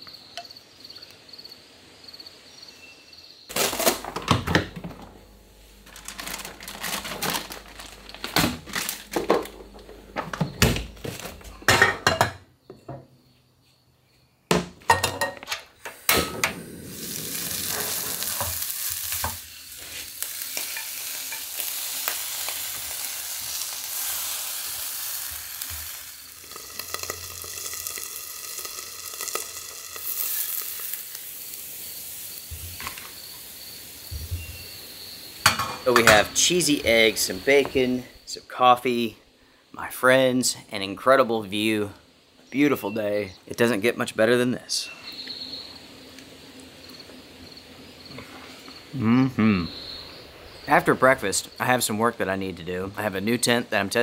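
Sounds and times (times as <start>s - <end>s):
faint insect chirping: 0.0s - 3.6s, 4.9s - 11.7s, 12.5s - 16.0s, 16.6s - 54.0s
cookware clattering on a stove: 11.6s - 13.0s, 14.9s - 15.6s
food sizzling in a pan: 15.9s - 37.9s.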